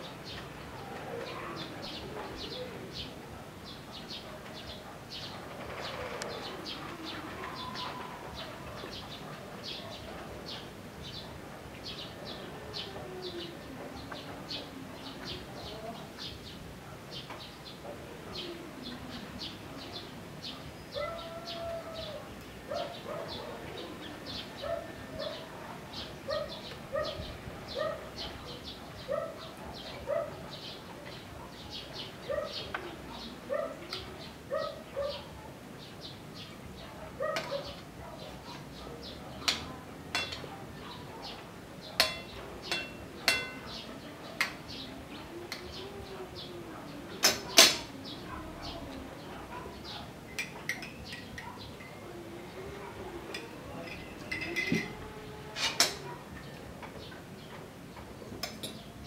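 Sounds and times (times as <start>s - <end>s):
birds chirping: 0.0s - 59.0s
cutlery clinking on plate: 39.4s - 40.5s, 42.0s - 43.7s, 50.3s - 52.0s, 53.3s - 55.0s, 55.6s - 56.0s.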